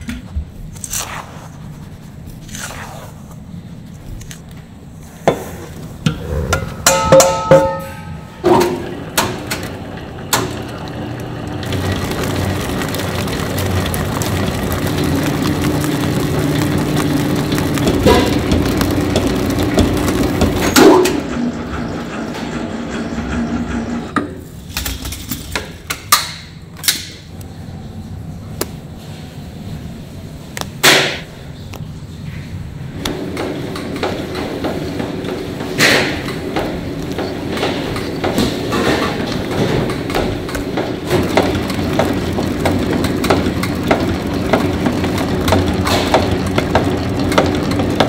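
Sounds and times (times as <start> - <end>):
machinery running with low hum: 0.0 - 25.8, 27.1 - 48.0.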